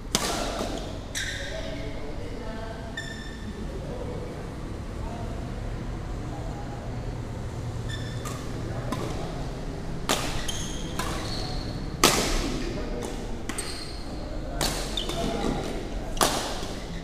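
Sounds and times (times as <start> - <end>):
racket hitting shuttlecock: 0.1 - 1.0, 8.2 - 9.3, 10.0 - 13.8, 14.6 - 16.9
shoes squeaking on court: 0.5 - 2.0, 2.9 - 3.5, 7.9 - 9.2, 10.1 - 17.0.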